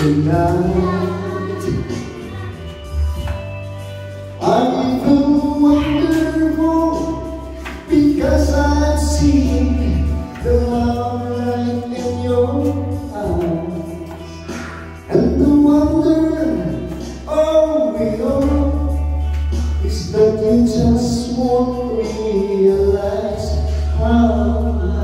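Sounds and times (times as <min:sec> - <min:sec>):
karaoke music: 0:00.0 - 0:25.0
person singing: 0:00.0 - 0:25.0.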